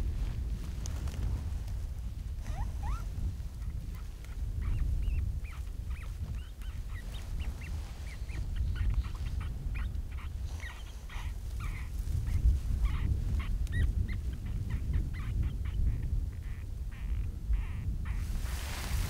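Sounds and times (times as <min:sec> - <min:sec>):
low wind rumble: 0:00.0 - 0:19.0
high animal calls chattering: 0:03.7 - 0:18.4.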